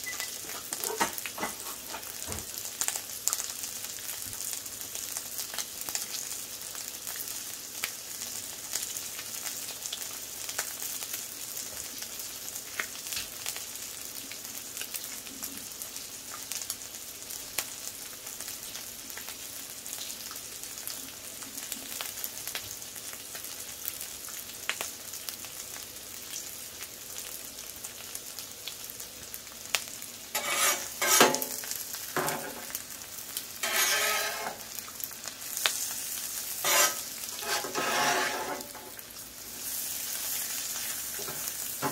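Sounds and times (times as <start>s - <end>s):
bacon sizzling on a griddle: 0.0s - 41.9s
metal spatula scraping griddle: 30.3s - 32.7s, 33.6s - 34.7s, 36.5s - 39.0s.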